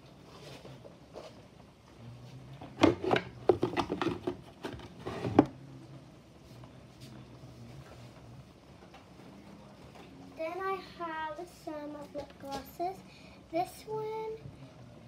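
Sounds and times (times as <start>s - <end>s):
containers knocking and clattering: 2.6s - 5.5s.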